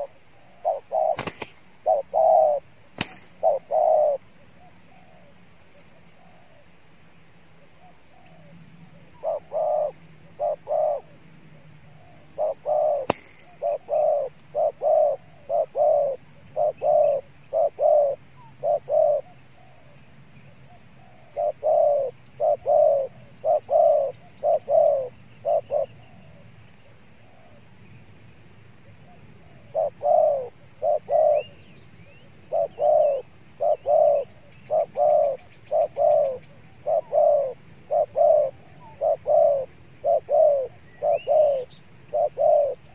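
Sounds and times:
dove cooing: 0.0s - 6.8s, 7.6s - 20.0s, 20.7s - 27.6s, 28.8s - 42.9s
sharp click: 1.2s - 1.6s, 3.0s - 3.4s, 13.0s - 13.6s.

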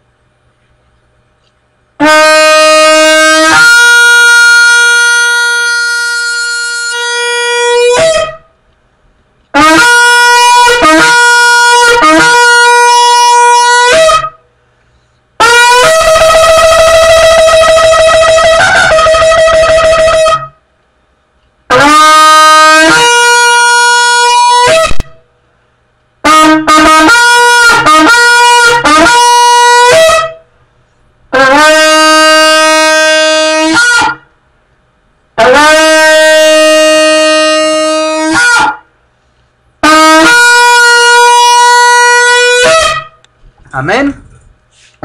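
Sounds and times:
shofar blasts: 2.0s - 8.6s, 9.5s - 14.5s, 15.4s - 20.7s, 21.7s - 25.4s, 26.2s - 30.6s, 31.3s - 34.4s, 35.4s - 39.0s, 39.8s - 43.3s.

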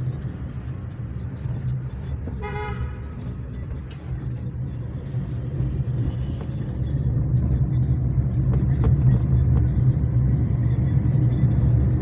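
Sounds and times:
car engine and road rumble: 0.0s - 12.0s
vehicle horn toot: 2.4s - 3.1s.

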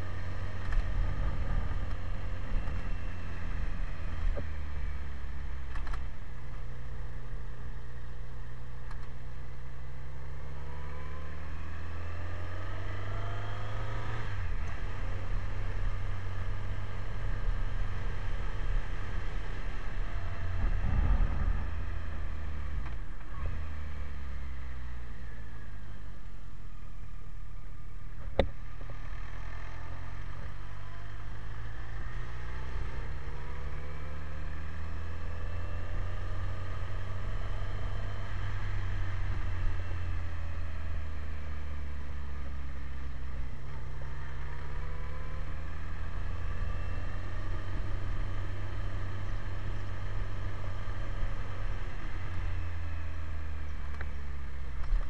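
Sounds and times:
motorcycle engine accelerating: 0.0s - 55.0s
sharp click: 5.7s - 6.1s
low rumble: 19.9s - 25.8s.

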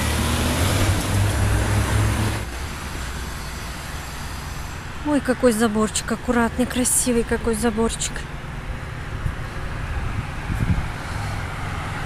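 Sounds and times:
traffic on wet street: 0.0s - 12.0s.

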